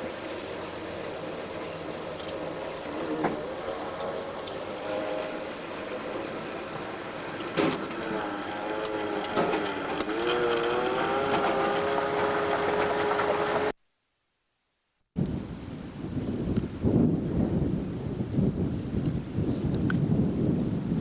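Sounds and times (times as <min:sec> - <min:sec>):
vehicle engine running: 0:00.0 - 0:13.8.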